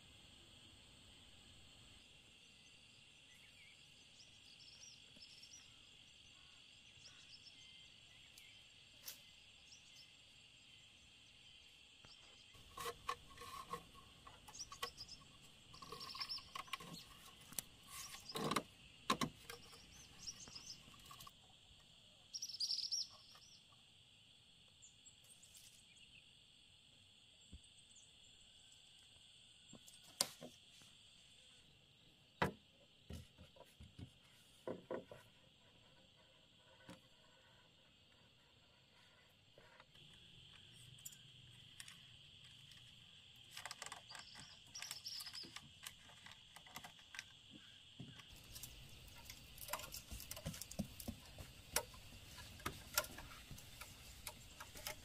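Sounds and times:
high insect drone: 0:00.0 - 0:55.0
bamboo poles knocking and scraping: 0:12.1 - 0:21.5, 0:29.7 - 0:30.8, 0:32.4 - 0:55.0
bird chirps: 0:14.2 - 0:18.5, 0:19.5 - 0:21.3, 0:22.2 - 0:23.8, 0:43.8 - 0:45.6.

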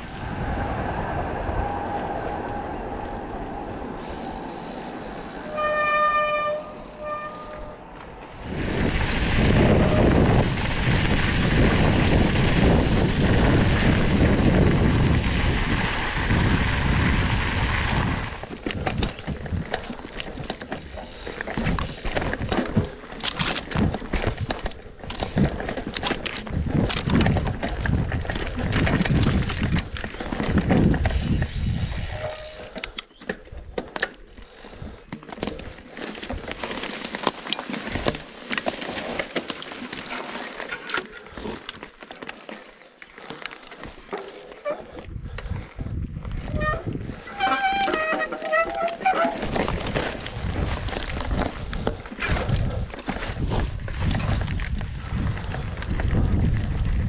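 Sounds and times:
train passing with loud rush: 0:00.0 - 0:10.6
mountain bike rattling over ground: 0:01.6 - 0:57.0
train horn toots: 0:05.4 - 0:07.9.

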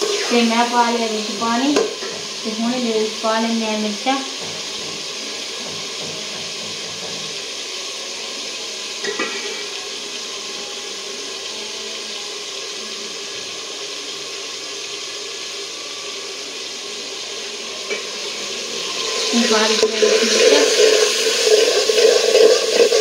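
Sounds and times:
curry sizzling and bubbling: 0:00.0 - 0:23.0
spoon knocking on pot: 0:04.4 - 0:07.4.

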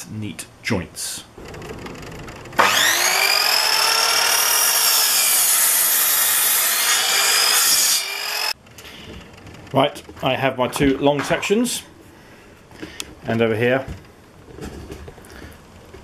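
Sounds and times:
electric mitre saw cutting wood: 0:02.6 - 0:08.6.

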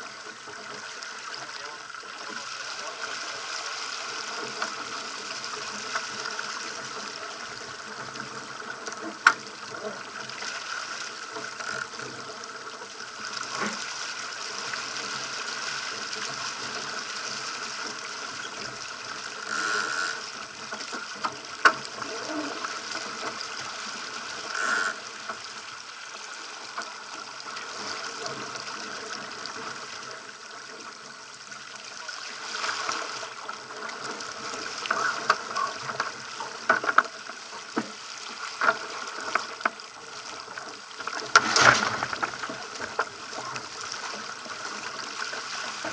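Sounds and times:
water splashing along hull: 0:00.0 - 0:45.9
boat knocks and slaps: 0:41.1 - 0:43.2.

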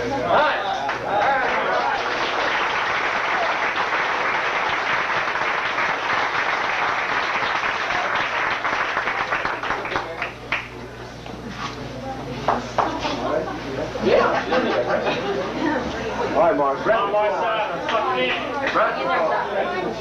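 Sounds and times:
people clapping: 0:00.6 - 0:10.8, 0:12.5 - 0:13.1, 0:17.8 - 0:18.9.

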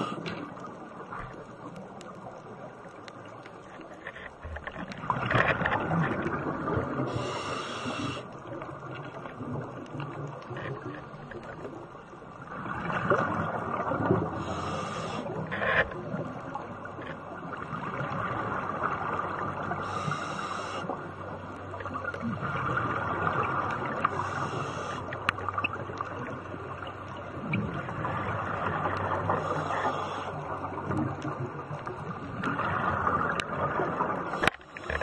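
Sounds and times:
exhaled air bubbles: 0:04.7 - 0:16.8
regulator inhalation hiss: 0:07.1 - 0:08.3, 0:14.4 - 0:15.3, 0:19.8 - 0:21.0, 0:24.1 - 0:25.2, 0:29.4 - 0:30.3.

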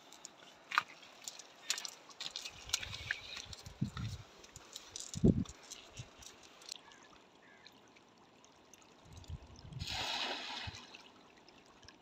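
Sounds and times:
cast net clicks and rustles: 0:00.1 - 0:06.8.

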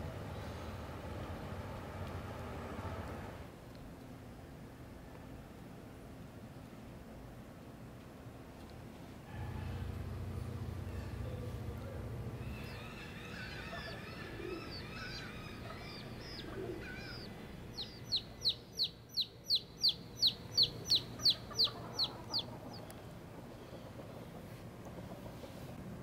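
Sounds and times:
chicks chirping: 0:10.8 - 0:23.0
hen clucking: 0:10.8 - 0:23.0.

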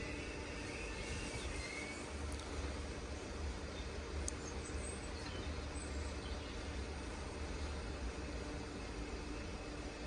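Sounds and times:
hiss: 0:00.0 - 0:05.1.

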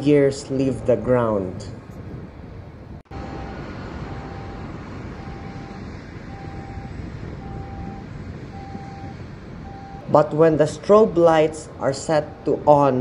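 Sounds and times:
jet engine noise: 0:00.0 - 0:13.0
single tone beeps: 0:03.1 - 0:10.1.

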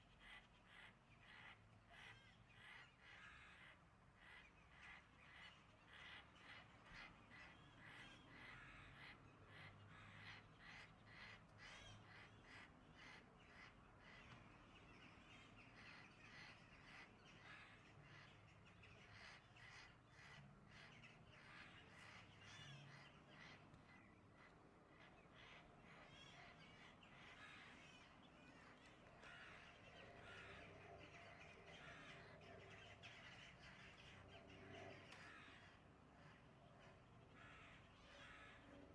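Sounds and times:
crow cawing: 0:00.2 - 0:05.0, 0:05.9 - 0:14.3, 0:37.4 - 0:38.8.

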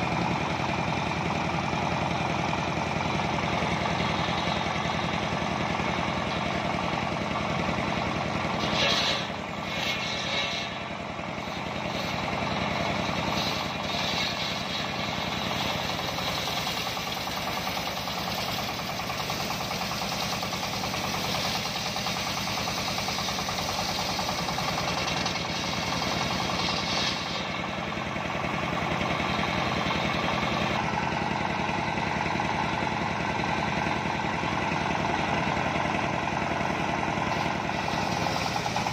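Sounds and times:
diesel engine running: 0:00.0 - 0:38.9
saw blade ripping through log: 0:08.5 - 0:18.8, 0:22.7 - 0:27.7.

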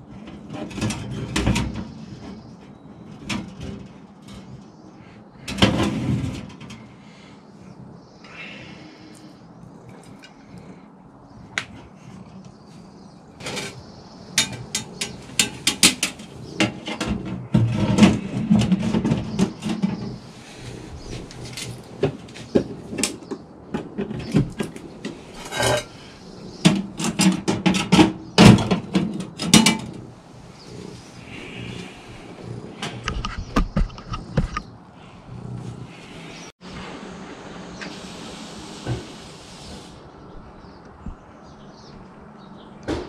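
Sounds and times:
metal racks clinking and clattering: 0:00.2 - 0:02.4, 0:13.4 - 0:26.0, 0:26.6 - 0:30.1.

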